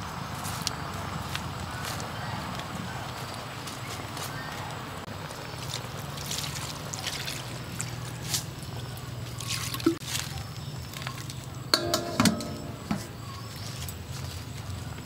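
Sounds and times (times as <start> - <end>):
metal basin clanking on wok: 11.7 - 13.5.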